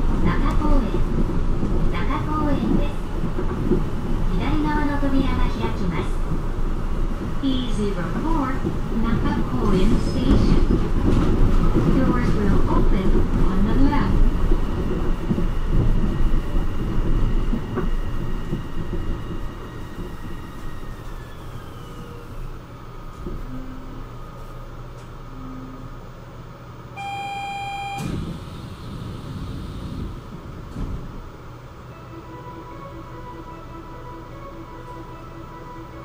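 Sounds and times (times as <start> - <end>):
train running rumble: 0.0 - 36.0
train motor whine: 9.6 - 36.0
electronic beep: 27.0 - 28.2.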